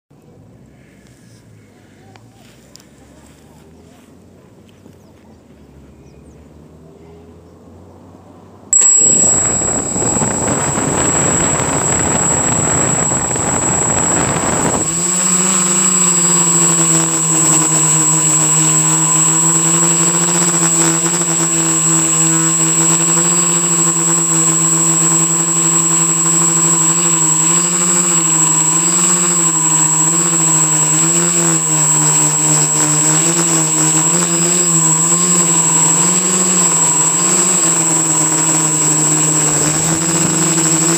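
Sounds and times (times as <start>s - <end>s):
high steady whine: 8.7s - 40.9s
quadcopter motors buzzing: 8.8s - 40.9s.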